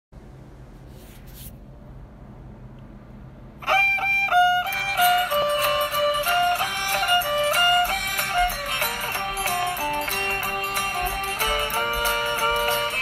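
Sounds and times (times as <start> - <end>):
accordion melody: 3.6 - 13.0.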